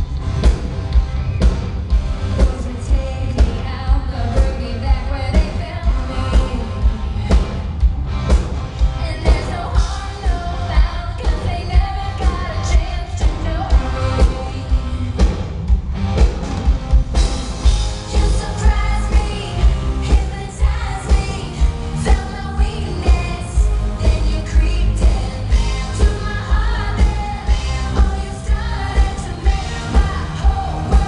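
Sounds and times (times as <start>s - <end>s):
live pop-rock band: 0.0s - 31.0s
woman singing: 2.3s - 7.8s, 9.0s - 15.3s, 18.0s - 31.0s.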